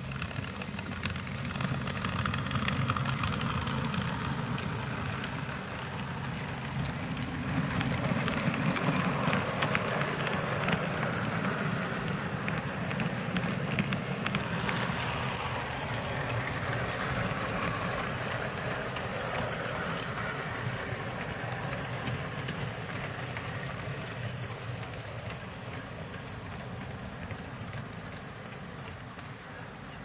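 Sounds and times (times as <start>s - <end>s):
model train rumbling on track: 0.0s - 30.0s
wheel clicks on track: 0.0s - 30.0s.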